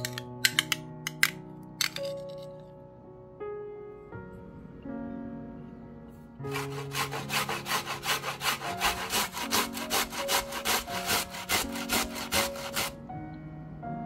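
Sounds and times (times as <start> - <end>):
cucumber rasping on metal grater: 6.5 - 13.0.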